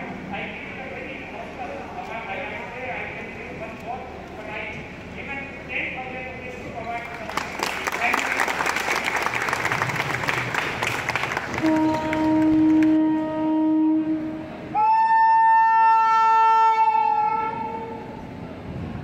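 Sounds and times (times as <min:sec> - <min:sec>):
applause: 0:07.0 - 0:13.0
locomotive horn: 0:11.4 - 0:18.3.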